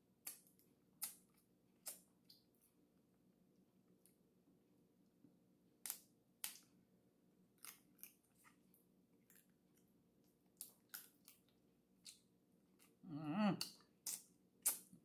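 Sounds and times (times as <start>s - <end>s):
clicks and smacks of eating crab: 0.2s - 2.5s, 5.8s - 6.8s, 7.6s - 8.6s, 10.5s - 13.0s, 13.6s - 15.0s.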